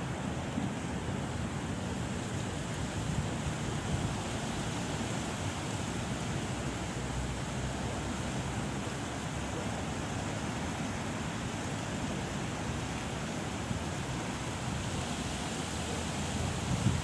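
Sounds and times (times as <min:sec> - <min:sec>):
wind rustling palm fronds: 0:00.0 - 0:17.0
wind rumble on microphone: 0:08.2 - 0:17.0.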